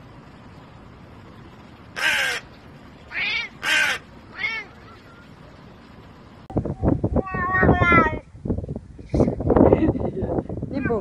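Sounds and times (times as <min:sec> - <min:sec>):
crow cawing: 0:02.0 - 0:02.5, 0:03.1 - 0:05.2.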